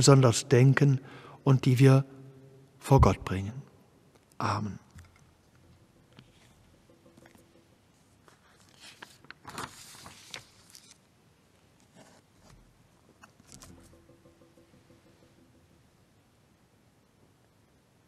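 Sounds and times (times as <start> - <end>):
people rustling and clicking: 11.8 - 14.9.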